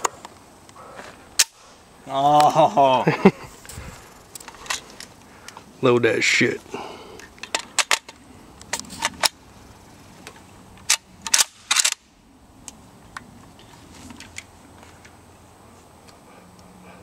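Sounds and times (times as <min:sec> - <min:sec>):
rifle being loaded clicks: 0:10.8 - 0:12.0.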